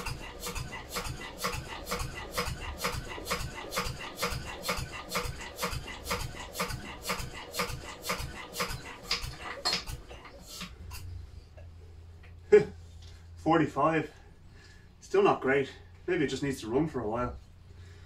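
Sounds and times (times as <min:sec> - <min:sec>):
engine cranked by hand clicking: 0:00.0 - 0:11.1.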